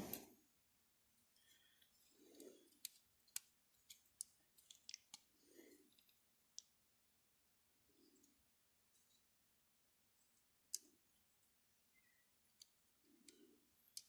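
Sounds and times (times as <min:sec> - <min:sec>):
plastic bricks clicking: 0:01.8 - 0:05.3.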